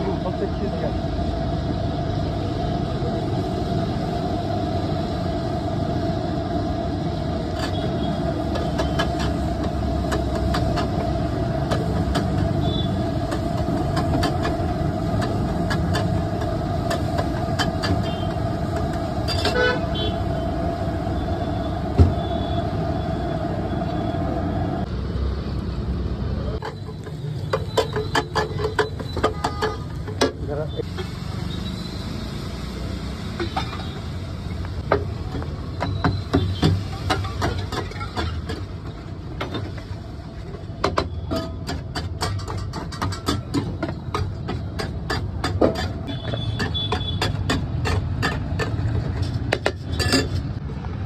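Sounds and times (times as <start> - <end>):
spatula scraping griddle: 36.8 - 38.7.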